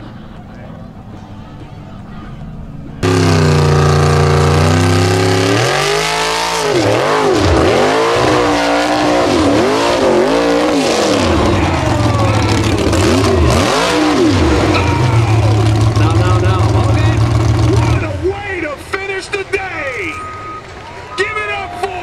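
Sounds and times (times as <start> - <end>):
buggy engine revving hard: 3.0 - 18.3
buggy tumbling down slope: 6.0 - 18.2.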